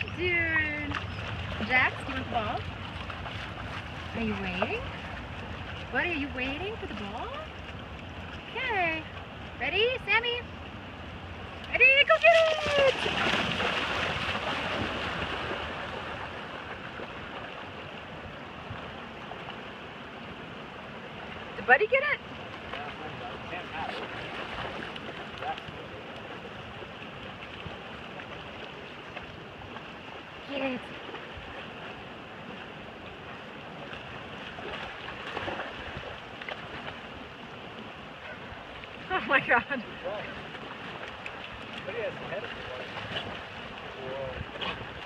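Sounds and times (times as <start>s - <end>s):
river current rushing: 0.0s - 45.0s
dogs splashing in water: 0.2s - 9.3s, 12.0s - 17.8s, 22.0s - 32.1s, 33.7s - 37.3s.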